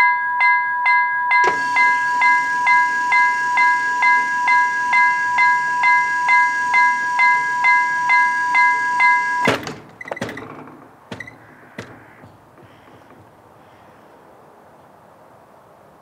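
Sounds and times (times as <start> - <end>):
level-crossing bell ringing: 0.0 - 9.5
barrier arm clunk: 1.4 - 13.3.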